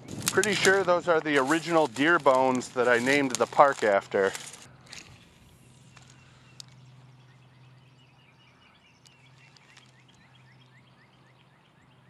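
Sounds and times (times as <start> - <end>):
small bird chirping: 4.9 - 12.0.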